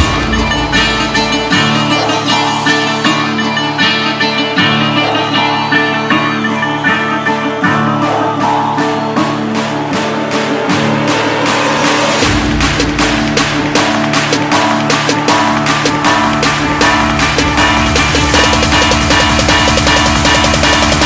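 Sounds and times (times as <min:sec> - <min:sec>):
plucked bouzouki melody: 0:00.0 - 0:08.3
electronic dance music: 0:00.0 - 0:21.0.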